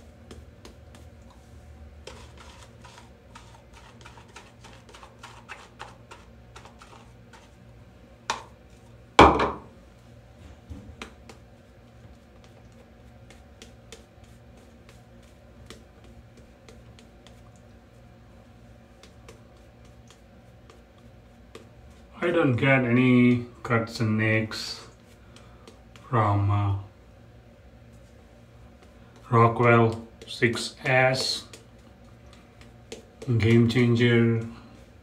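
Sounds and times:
shaving brush working lather: 0.0 - 7.6.

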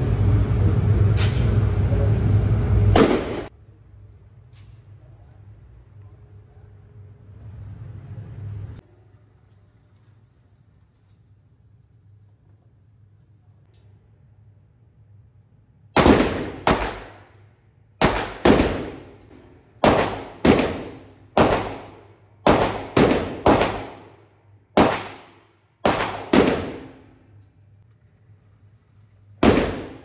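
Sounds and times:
pistol shots echoing indoors: 3.0 - 3.5, 15.9 - 27.6, 29.4 - 30.0.

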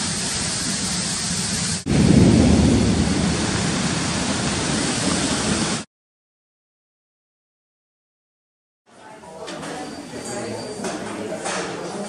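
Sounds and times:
steady rain hissing: 0.0 - 5.9
low rumble: 1.9 - 5.8.

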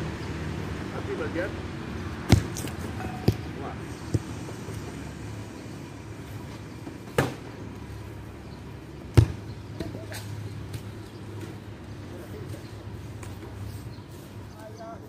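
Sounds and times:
foot kicking football: 2.2 - 4.5, 9.1 - 10.1.

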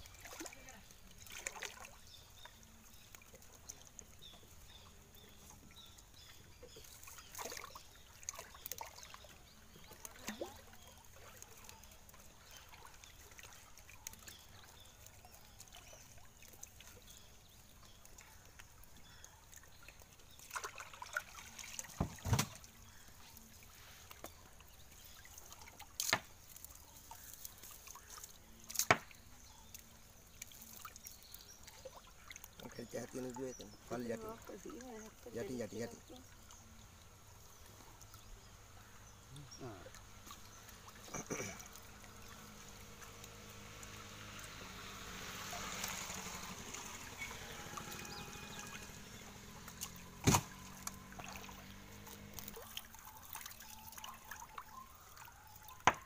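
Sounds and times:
water sloshing and trickling: 0.0 - 56.0.

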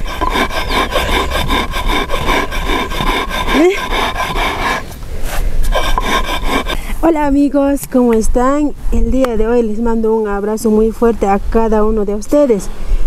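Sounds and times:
grinding stone rubbing on stone slab: 0.0 - 6.8.

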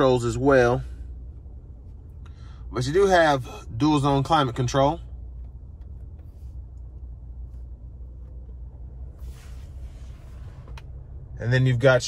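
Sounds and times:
car cabin rumble: 0.0 - 12.0
brief hiss: 9.2 - 10.8.

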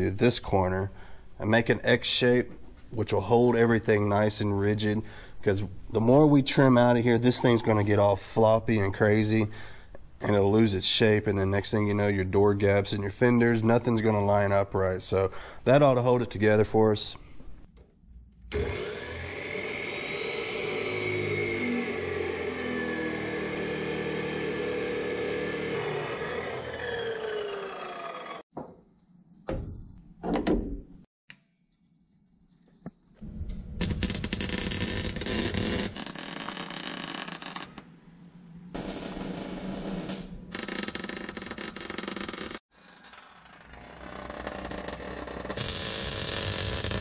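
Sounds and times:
chop saw cutting steel: 18.5 - 28.4, 38.8 - 47.0
welder crackling: 33.8 - 37.8, 44.2 - 47.0.

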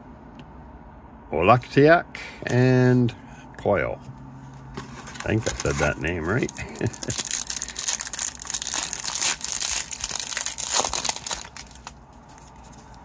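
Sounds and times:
foil wrapper crinkling and tearing: 5.1 - 13.0.

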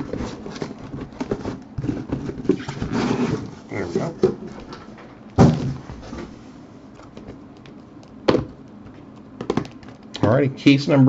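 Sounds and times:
boxes tapping and clicking: 0.0 - 5.9, 7.0 - 10.4
boxes thudding on table: 5.4 - 6.3, 8.3 - 8.6.

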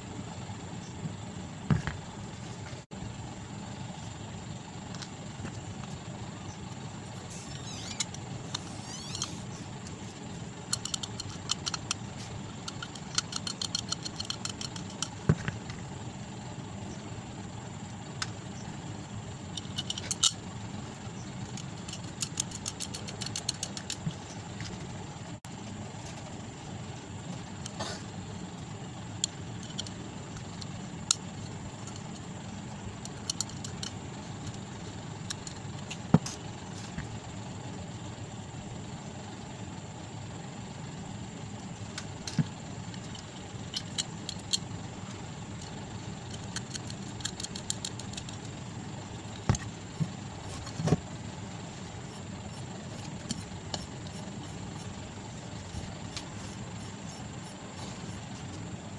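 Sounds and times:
steady low hum: 0.0 - 58.9
small metal clicks and clinks: 46.3 - 48.5.

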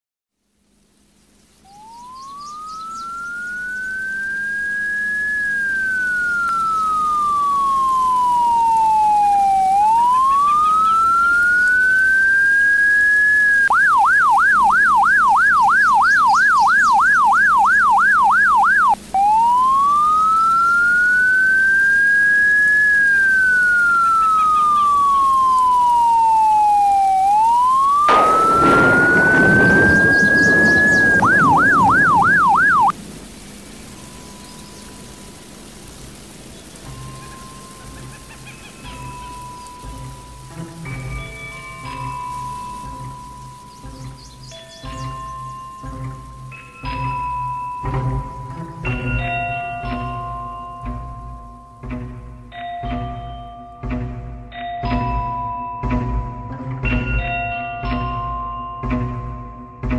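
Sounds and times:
electronic siren wailing: 1.7 - 33.0
siren fast yelp: 1.7 - 33.0
loud rush of noise: 4.2 - 10.3, 18.8 - 34.4.

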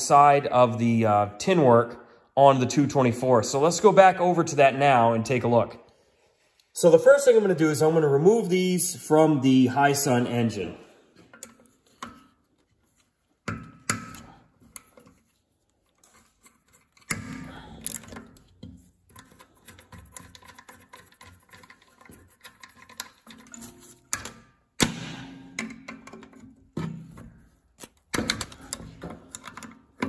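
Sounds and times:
metal tools clinking: 21.6 - 24.4.

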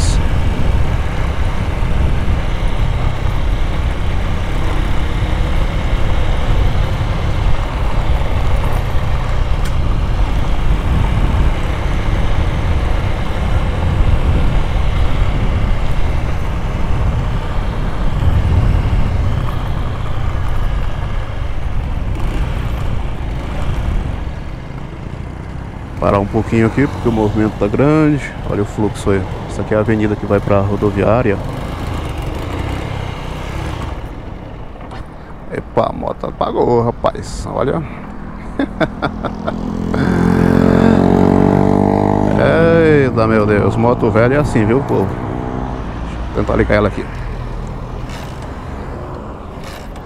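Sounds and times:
wind buffeting microphone: 0.0 - 29.8
motorcycle road noise: 0.0 - 50.0.

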